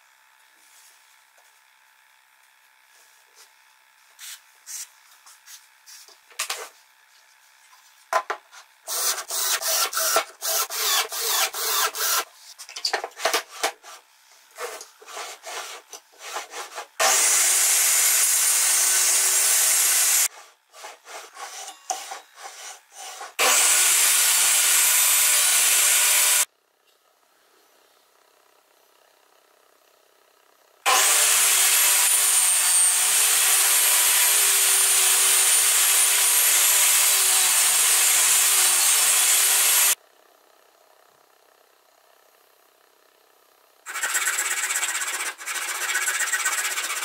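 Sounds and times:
table saw running: 8.8s - 12.3s, 14.6s - 26.5s, 30.9s - 40.0s, 43.9s - 47.0s.

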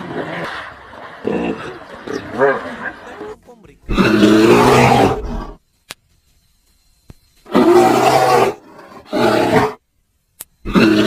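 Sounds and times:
hippopotamus calling: 0.0s - 5.6s.

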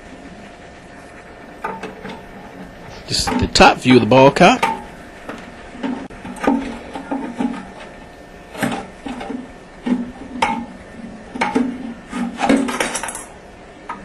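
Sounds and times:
scraping inside toilet tank: 5.8s - 12.7s.

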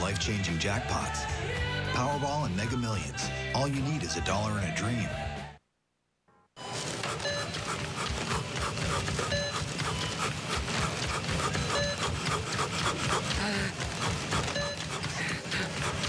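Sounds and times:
barcode scanner beeps: 6.6s - 12.4s, 14.2s - 15.0s.

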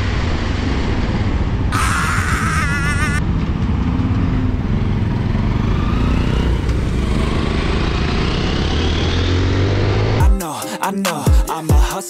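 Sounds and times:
wind rumble on microphone: 0.0s - 4.9s
motorcycle engine running: 1.8s - 9.1s.

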